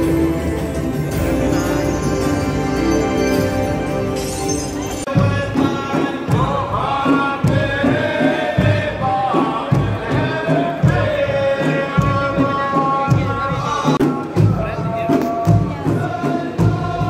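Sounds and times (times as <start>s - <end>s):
frame drums beating: 0.0s - 17.0s
men chanting in unison: 5.2s - 14.1s.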